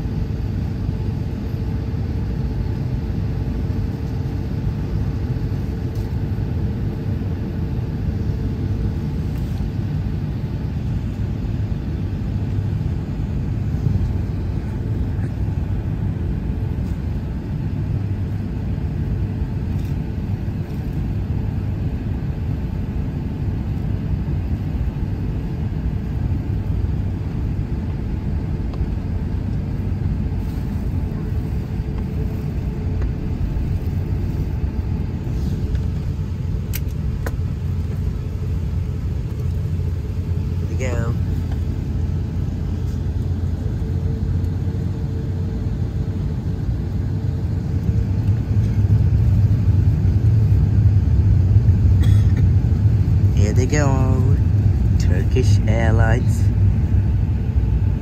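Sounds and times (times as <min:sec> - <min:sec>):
airliner cabin rumble: 0:00.0 - 0:58.0
faint steady hum: 0:00.0 - 0:58.0.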